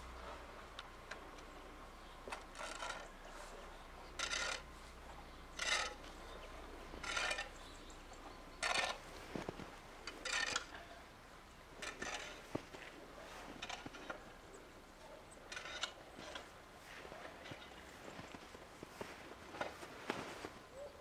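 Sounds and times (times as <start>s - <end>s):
footsteps crunching in snow: 9.0s - 10.0s, 16.2s - 20.7s.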